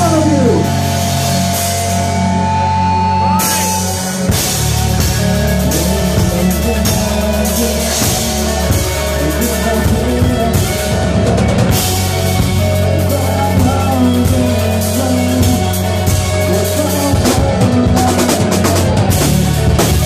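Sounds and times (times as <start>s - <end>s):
live rock band playing: 0.0s - 20.0s
cymbals and drums: 3.2s - 20.0s.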